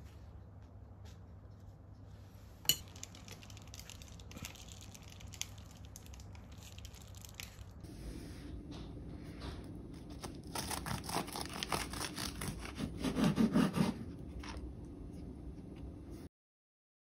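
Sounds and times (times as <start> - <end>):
low steady hum: 0.0 - 16.3
pastry crackling: 2.8 - 7.8, 9.8 - 13.0.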